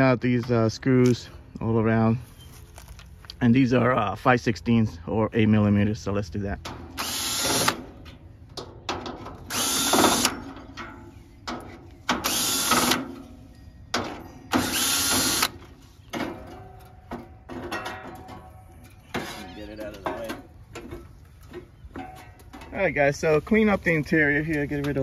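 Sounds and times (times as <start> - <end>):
cordless drill whirring: 7.0 - 7.8, 9.5 - 10.3, 12.2 - 13.0, 14.6 - 15.5.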